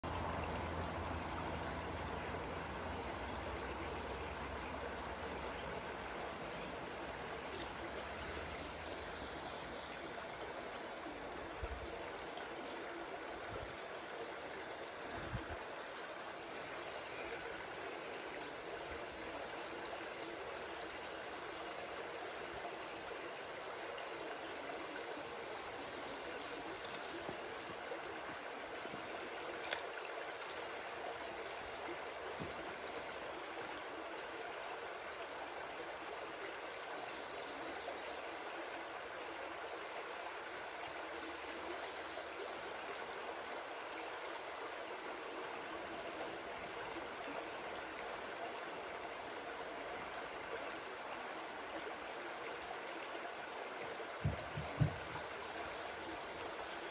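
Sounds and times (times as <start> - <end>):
creek water flowing: 0.0 - 56.9.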